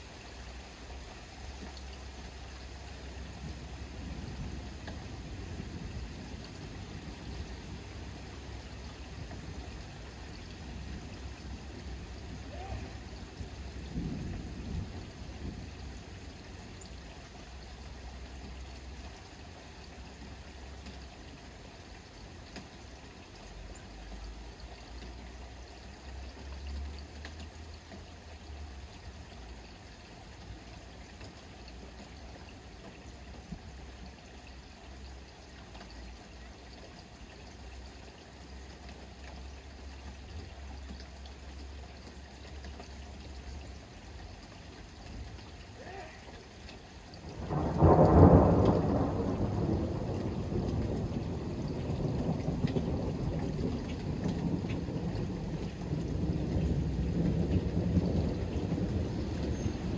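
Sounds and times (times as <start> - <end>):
steady rain: 0.0 - 59.9
water trickling and pouring: 0.0 - 59.9
distant thunder rumble: 2.8 - 16.8, 47.2 - 59.9.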